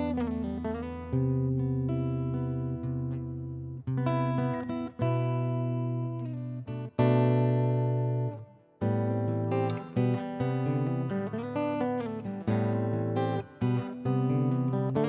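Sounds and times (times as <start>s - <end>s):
acoustic guitar chords: 0.0s - 15.0s.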